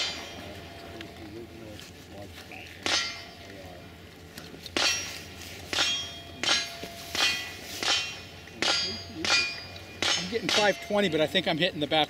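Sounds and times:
steel targets clanging: 0.0s - 0.8s, 2.8s - 3.5s, 4.8s - 11.4s.

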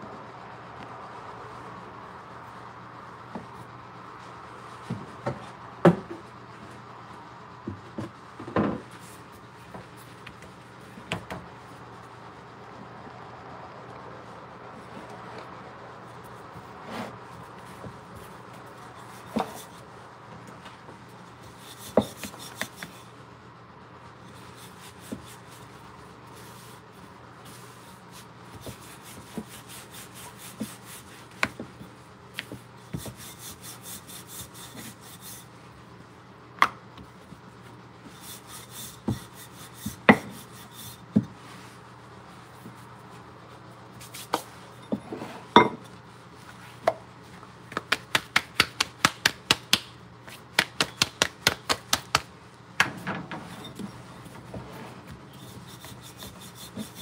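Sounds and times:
rolling pin rubbing on stone: 38.1s - 41.0s, 52.8s - 57.0s.

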